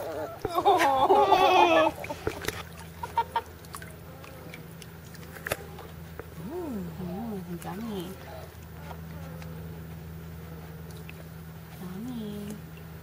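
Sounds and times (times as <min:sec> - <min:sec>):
puppy whining: 0:00.0 - 0:02.6.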